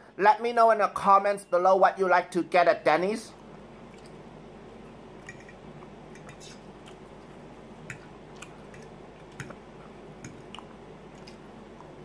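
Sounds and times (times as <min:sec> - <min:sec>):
quiet chewing: 0:03.8 - 0:12.0
fork clinking on ceramic plate: 0:05.2 - 0:05.6.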